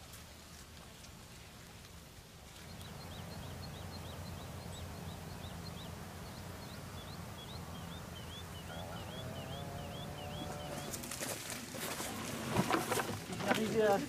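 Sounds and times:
low outdoor rumble: 0:02.7 - 0:13.6
bird chirping rapidly: 0:02.8 - 0:11.0.

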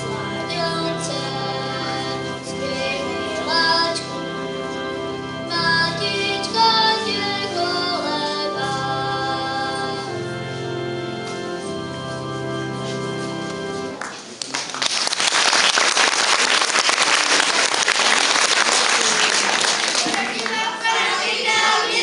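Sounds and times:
children singing: 0:00.0 - 0:04.2, 0:05.5 - 0:10.1, 0:19.6 - 0:22.0
instrumental accompaniment: 0:00.0 - 0:14.3.

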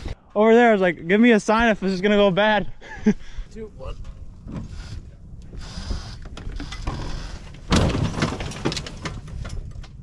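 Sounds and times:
vehicle crashing onto wheels: 0:06.9 - 0:10.0.

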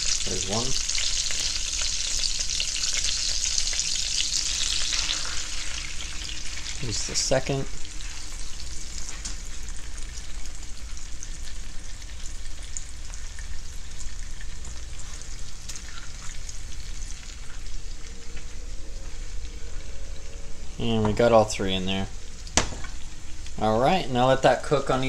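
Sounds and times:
fish frying in a pan: 0:00.0 - 0:19.9, 0:21.2 - 0:23.7.

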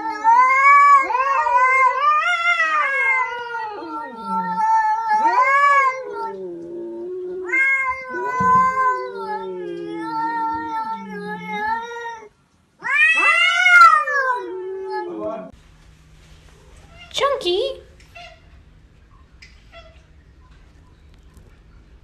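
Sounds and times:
cats yowling: 0:00.0 - 0:15.5, 0:18.0 - 0:18.6, 0:19.6 - 0:20.2.

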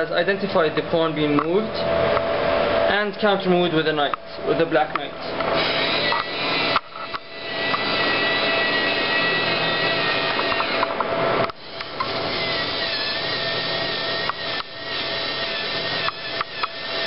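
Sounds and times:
servo motors whining: 0:05.4 - 0:17.0.

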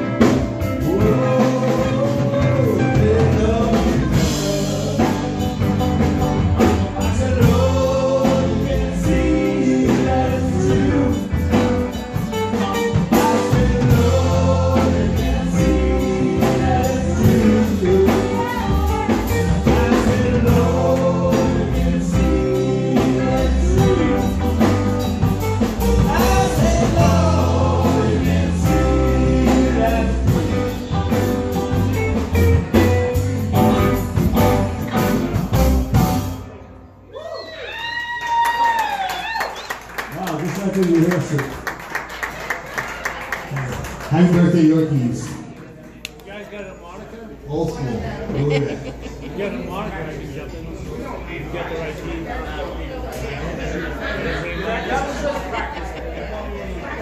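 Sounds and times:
man singing lead: 0:00.0 - 0:12.0, 0:12.7 - 0:31.8
drum kit: 0:00.0 - 0:36.6
electric guitars: 0:00.0 - 0:36.6
keyboard: 0:00.0 - 0:37.1
bass guitar: 0:00.0 - 0:37.3.

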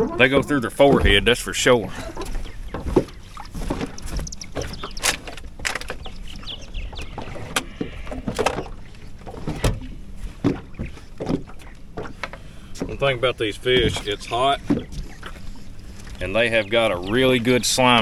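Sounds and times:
water and wind rumble: 0:00.0 - 0:18.0
knocks clicks and rustles: 0:02.2 - 0:13.1.

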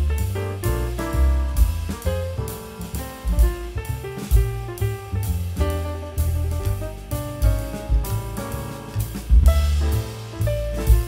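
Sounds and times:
jazz instrumental music: 0:00.0 - 0:11.0.

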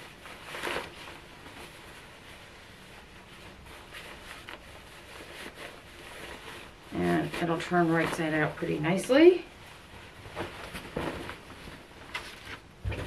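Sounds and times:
cotton fabric rustling: 0:00.0 - 0:13.0.

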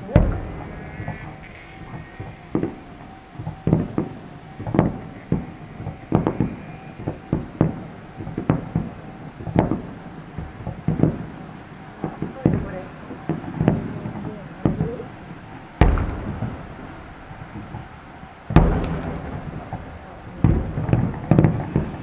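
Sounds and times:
firework shells booming: 0:00.0 - 0:22.0.

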